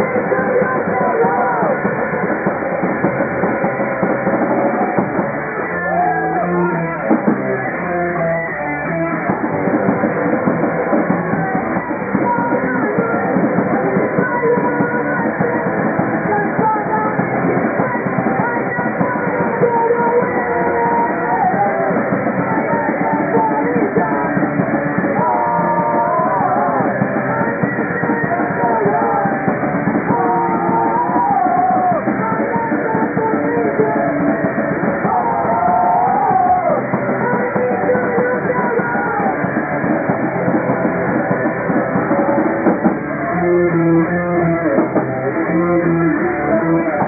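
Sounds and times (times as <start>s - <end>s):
person singing into a microphone: 0.0s - 2.4s, 11.3s - 39.8s
drum kit: 0.0s - 47.0s
electric guitar: 0.0s - 47.0s.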